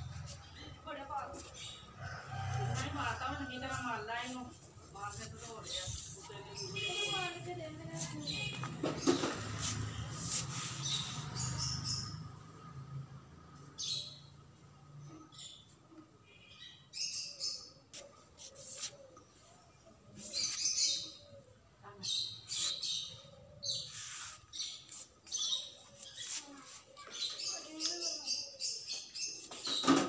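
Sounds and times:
small birds chirping: 5.0 - 12.3, 15.3 - 30.0.

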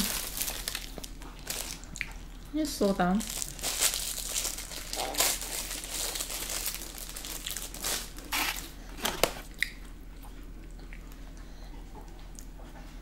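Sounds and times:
food packaging crinkling: 0.0 - 2.4, 3.1 - 9.8
crunchy chewing: 3.3 - 8.8.

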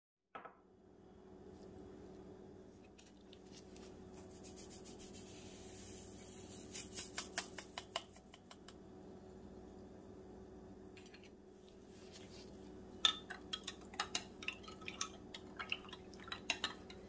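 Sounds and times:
steady low hum: 0.7 - 17.0
kitchenware clicks and taps: 7.2 - 8.6.

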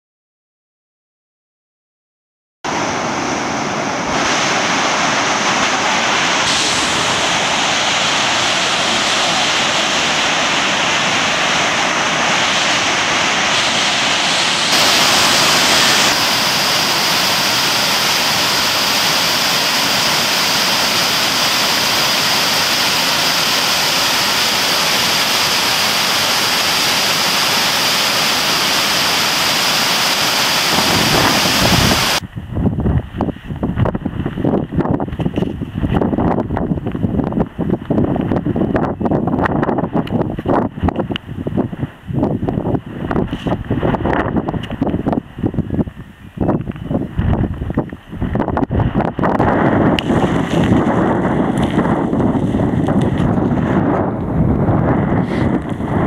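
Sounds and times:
roar of churning water: 2.7 - 32.2
wind gusts on microphone: 2.7 - 56.0.

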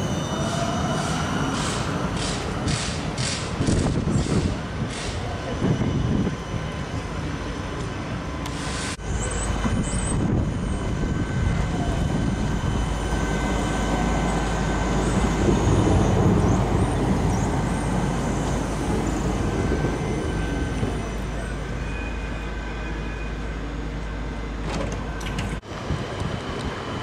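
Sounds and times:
street noise: 0.0 - 27.0
tram rumbling over rails: 0.0 - 27.0.

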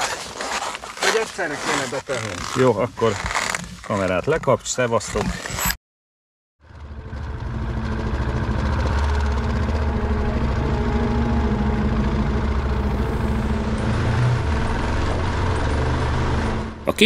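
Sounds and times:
motorcycle engine running: 6.6 - 17.0.

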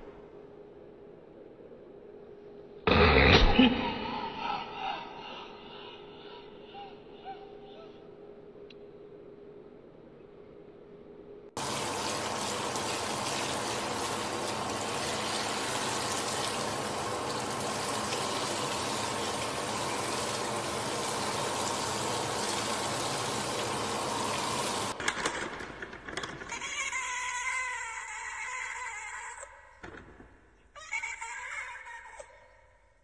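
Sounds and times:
sprayer hissing water: 11.6 - 25.0.

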